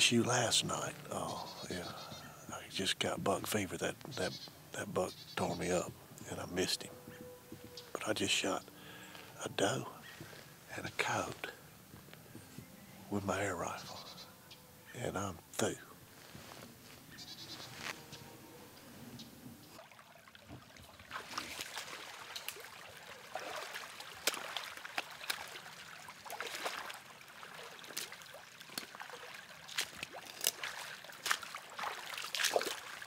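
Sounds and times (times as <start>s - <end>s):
wading through shallow water: 19.6s - 33.0s.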